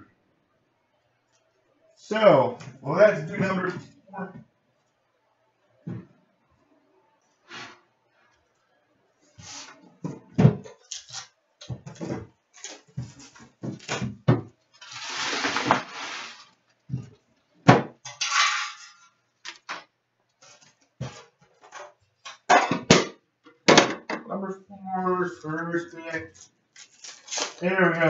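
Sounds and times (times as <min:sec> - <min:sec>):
wrapping tearing: 0:26.4 - 0:27.6.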